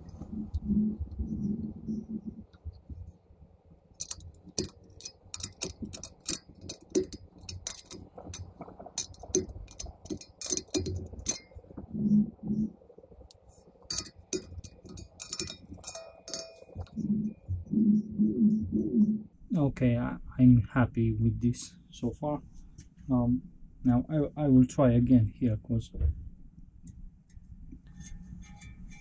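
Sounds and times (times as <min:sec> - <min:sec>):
spoke wrench clicking on spokes: 0:04.0 - 0:11.6, 0:13.9 - 0:17.0
metallic rings: 0:04.0 - 0:11.8, 0:13.8 - 0:17.5.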